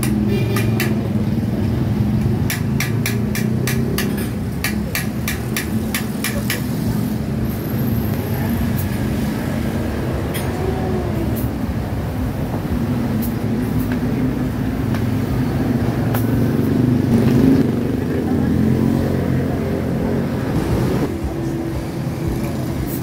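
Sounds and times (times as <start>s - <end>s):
hammer tapping on metal: 0.0s - 1.1s, 2.2s - 6.7s
motor vehicles rumbling: 0.0s - 23.0s.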